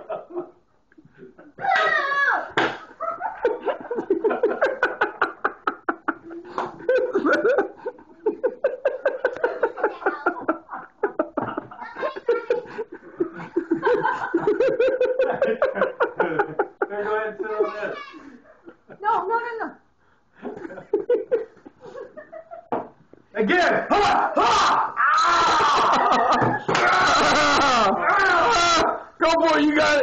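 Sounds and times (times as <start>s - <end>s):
people laughing: 2.8s - 19.0s, 20.4s - 22.8s, 25.2s - 29.1s
people talking: 9.4s - 10.6s, 11.7s - 12.8s, 16.8s - 18.4s
loud whoop: 23.9s - 29.0s.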